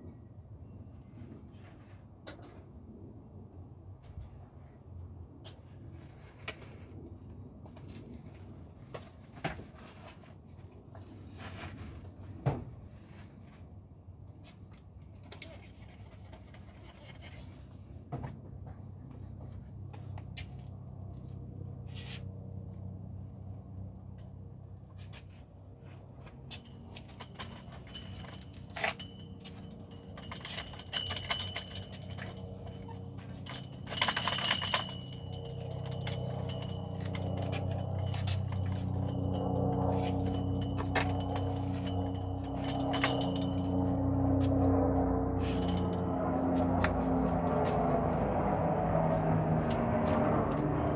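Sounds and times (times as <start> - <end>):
rustling scrape: 9.6 - 13.7
steady low hum: 20.9 - 50.9
hands and tools clicking and scraping: 24.1 - 44.7, 45.4 - 46.0.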